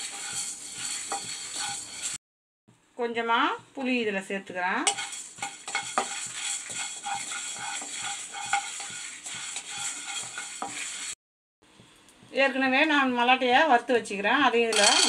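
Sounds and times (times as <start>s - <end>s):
wooden spatula scraping lentils in pan: 0.0s - 2.2s, 4.8s - 11.2s, 14.7s - 15.0s.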